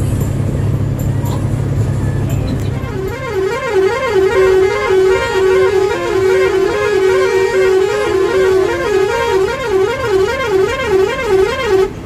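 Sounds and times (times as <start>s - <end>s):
musical bus horn warbling melody: 1.0s - 12.0s.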